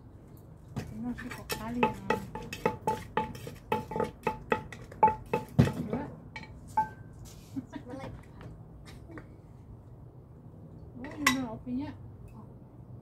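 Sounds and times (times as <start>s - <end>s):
pestle pounding in clay mortar: 0.8s - 7.0s.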